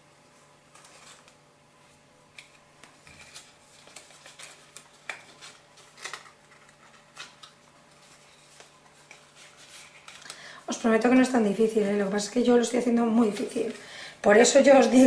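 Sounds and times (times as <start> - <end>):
paper clicks and rustles: 0.6 - 1.4, 2.3 - 10.5.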